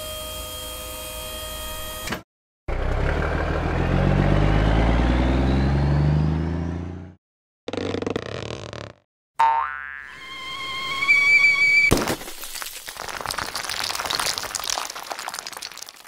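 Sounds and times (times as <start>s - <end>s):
truck engine revving: 2.7s - 8.2s.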